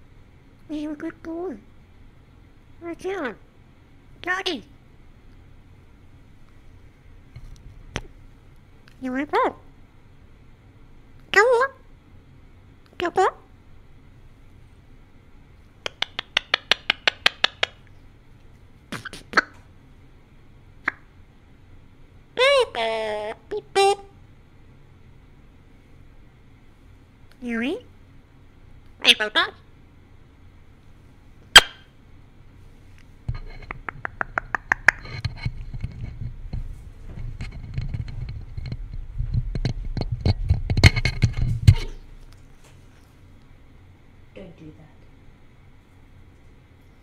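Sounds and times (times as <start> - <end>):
beak tapping on microphone grille: 15.8 - 17.8, 33.3 - 36.6
parrot clicking: 15.8 - 17.9, 33.7 - 35.2
microphone bumping rumble: 35.3 - 42.2.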